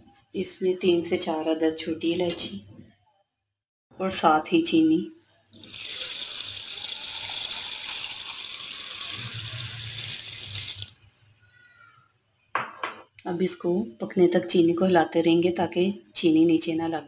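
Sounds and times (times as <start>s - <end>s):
sugar pouring into water: 5.5s - 11.0s.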